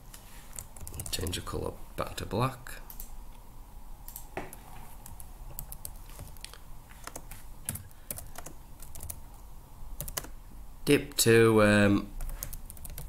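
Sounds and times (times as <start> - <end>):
computer keyboard typing: 0.5 - 1.3, 5.0 - 9.2, 10.0 - 10.4, 12.2 - 13.0.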